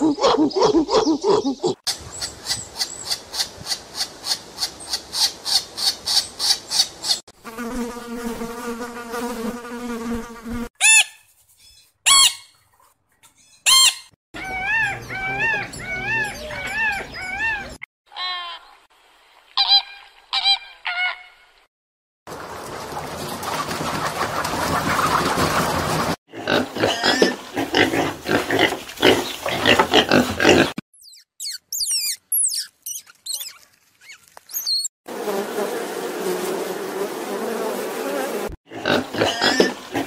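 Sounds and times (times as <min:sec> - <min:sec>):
monkey calls: 0:00.0 - 0:01.8, 0:13.6 - 0:18.6, 0:31.0 - 0:34.9
insect buzz: 0:07.4 - 0:10.7
macaws squawking: 0:13.4 - 0:18.4, 0:27.0 - 0:34.9
repeated rising-and-falling calls: 0:13.5 - 0:17.8, 0:31.0 - 0:34.9
insect high chirping pulses: 0:31.0 - 0:34.9.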